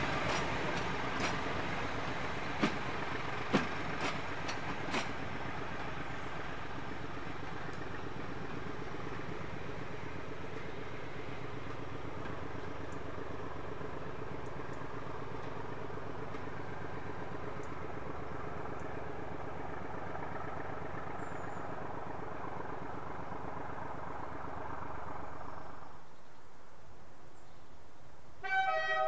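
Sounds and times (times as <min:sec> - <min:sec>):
diesel locomotive engine running: 0:00.0 - 0:27.2, 0:28.3 - 0:29.0.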